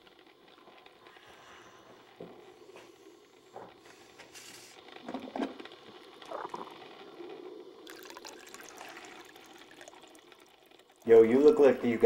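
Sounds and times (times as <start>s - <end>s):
faint knocks and shuffles: 0.6s - 5.5s
coffee splashing into glass carafe: 7.8s - 11.8s.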